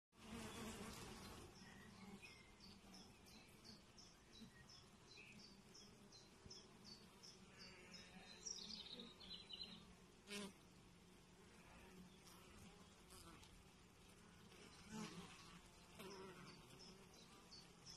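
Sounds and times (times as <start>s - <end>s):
low hum of honey bees: 0.2s - 17.9s
bird chirping and twittering: 0.6s - 9.8s.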